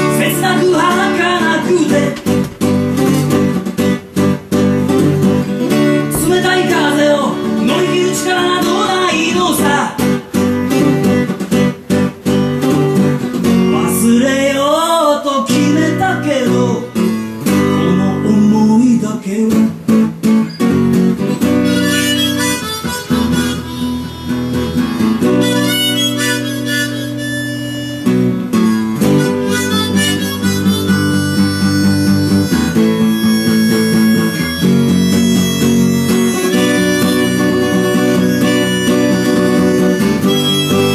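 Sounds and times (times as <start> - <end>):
acoustic guitar strumming: 0.0 - 40.9
harmonica melody: 21.3 - 40.9.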